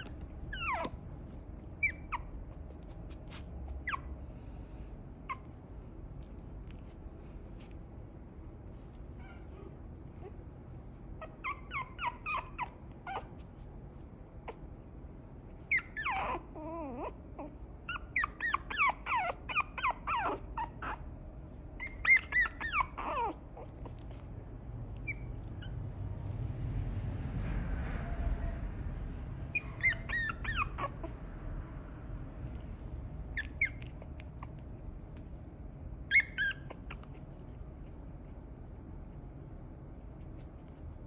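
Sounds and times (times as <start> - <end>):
puppy whimpering: 0.0 - 4.2, 5.1 - 7.0, 8.6 - 14.9, 15.5 - 26.4, 29.5 - 31.3, 33.3 - 35.3, 36.0 - 38.4.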